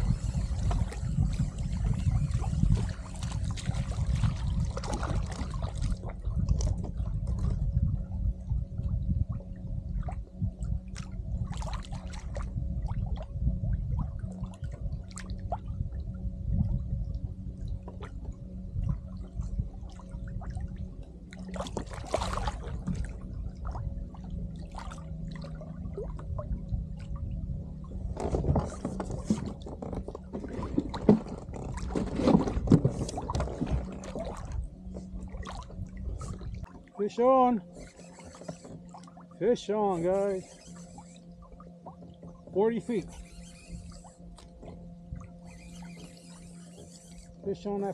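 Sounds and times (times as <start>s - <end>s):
faint steady hum: 0.0s - 47.9s
water lapping and gurgling: 0.0s - 47.9s
splashing and knocking: 28.2s - 34.4s.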